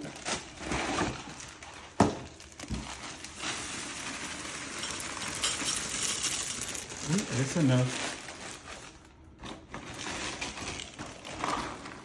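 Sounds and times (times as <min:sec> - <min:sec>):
plastic bag crinkling: 0:00.0 - 0:12.0
cereal rattling into a bowl: 0:02.4 - 0:08.7.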